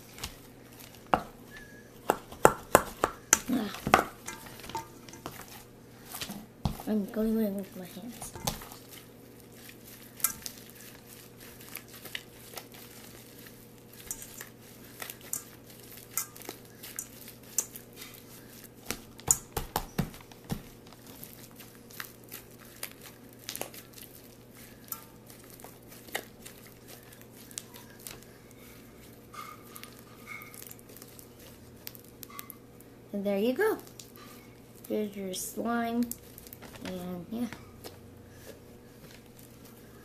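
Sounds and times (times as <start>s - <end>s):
wet clicks and crackles: 33.8s - 35.0s.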